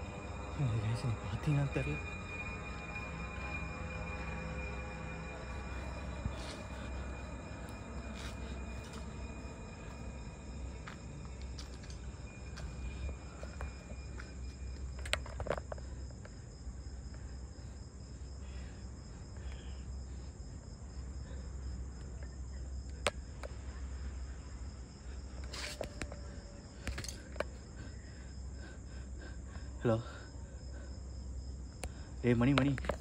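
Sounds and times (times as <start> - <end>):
low rumble: 0.0 - 22.2
crickets chirring: 0.0 - 33.0.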